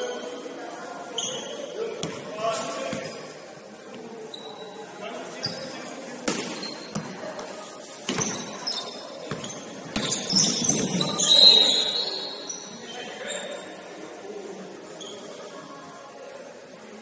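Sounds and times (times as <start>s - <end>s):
shoe squeaks: 1.1s - 1.8s, 4.3s - 4.8s, 5.4s - 5.9s, 6.5s - 7.1s, 8.1s - 13.8s, 15.0s - 15.4s
basketball bouncing on gym floor: 9.3s - 11.2s.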